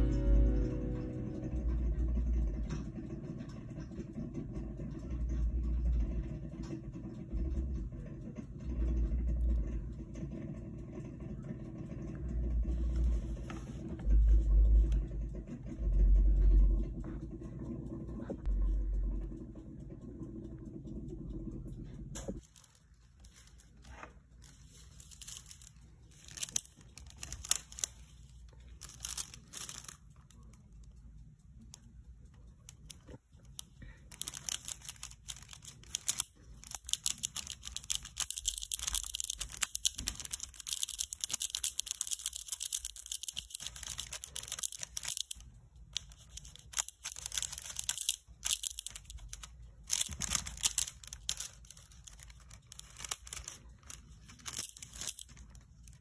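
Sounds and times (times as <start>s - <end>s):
foil crinkling and crackling: 22.4s - 30.2s, 33.8s - 45.4s, 46.0s - 56.0s.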